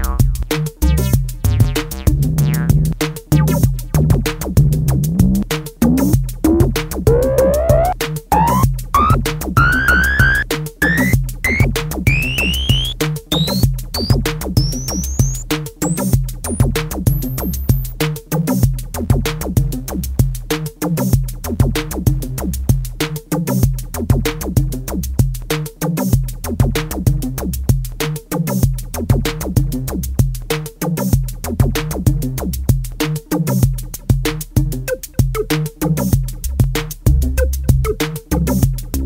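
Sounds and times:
electronic music with steady beat: 0:00.0 - 0:17.9
rising synth sweep: 0:07.1 - 0:13.0.

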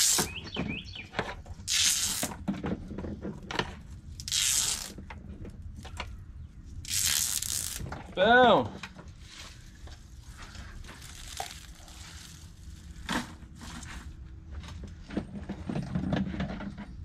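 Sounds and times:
wire bundles rustling: 0:04.2 - 0:05.0, 0:06.8 - 0:07.9, 0:09.2 - 0:14.2.

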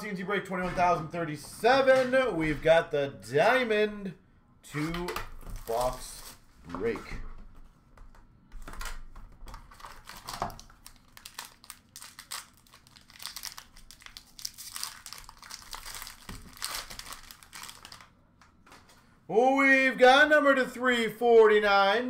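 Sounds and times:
plastic wrapping crinkling and tearing: 0:05.4 - 0:06.4, 0:08.6 - 0:18.2.

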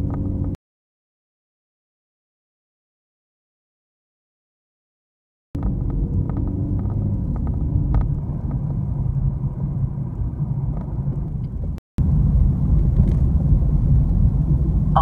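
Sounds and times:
car engine and tyres rumbling: 0:00.0 - 0:00.6, 0:05.6 - 0:15.0.

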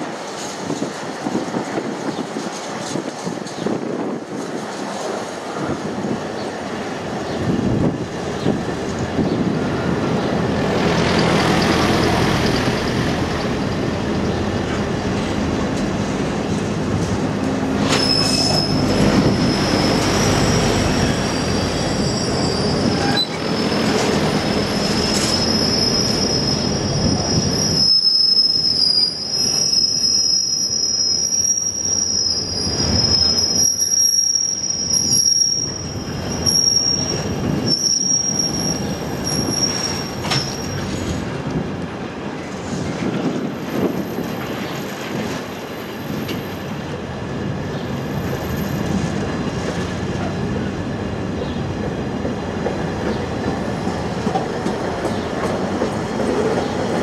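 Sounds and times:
wheels rumbling on track: 0:07.1 - 0:27.9, 0:38.4 - 0:57.0
train wheels squealing: 0:17.8 - 0:41.2.

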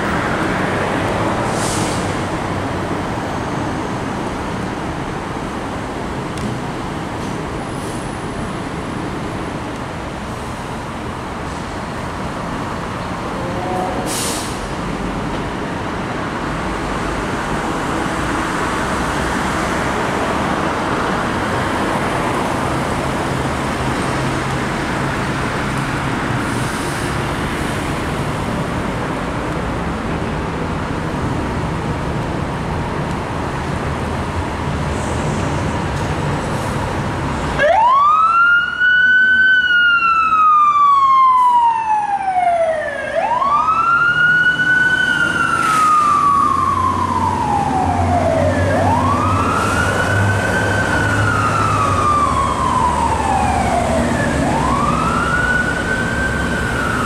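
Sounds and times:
street traffic: 0:00.0 - 0:57.0
fire engine siren wailing: 0:37.6 - 0:57.0.

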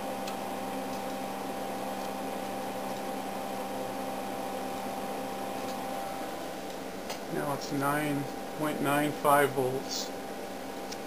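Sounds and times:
constant whine: 0:00.0 - 0:11.0
cooling fans whirring: 0:00.0 - 0:11.0.

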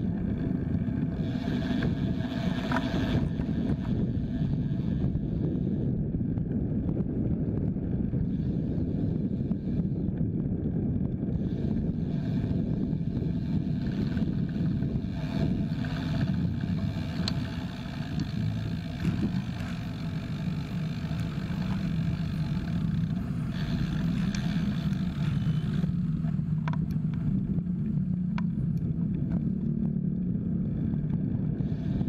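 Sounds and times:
slow road traffic rumble: 0:00.0 - 0:32.0
wind on microphone: 0:00.0 - 0:32.0
faint ticks: 0:13.3 - 0:30.3.

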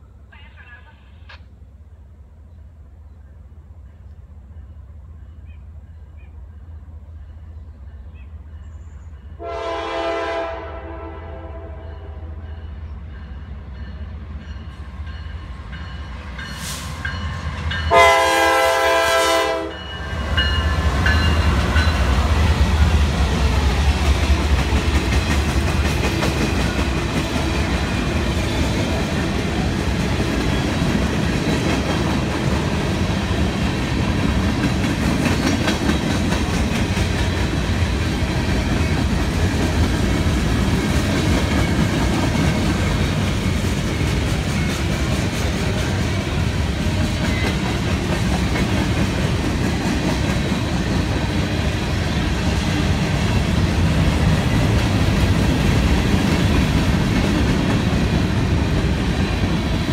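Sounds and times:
diesel locomotive rumble: 0:00.0 - 0:59.9
locomotive air horn blast: 0:09.4 - 0:12.4, 0:17.9 - 0:19.8
train wheels clicking over rail joints: 0:20.8 - 0:59.9.

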